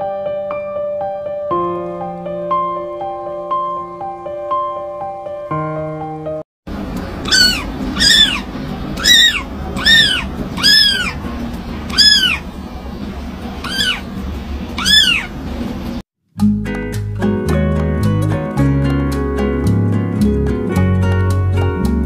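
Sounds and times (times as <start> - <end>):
low background hum: 6.7 - 16.0
kitten mewing: 7.2 - 11.2, 11.9 - 12.5, 13.6 - 14.1, 14.8 - 15.4.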